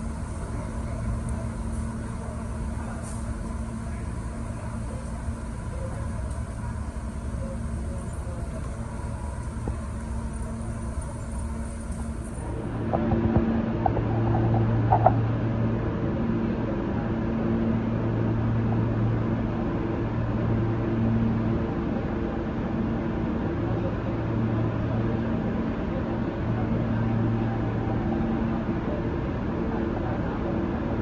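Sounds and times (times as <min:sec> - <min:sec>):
train ventilation humming: 0:00.0 - 0:31.0.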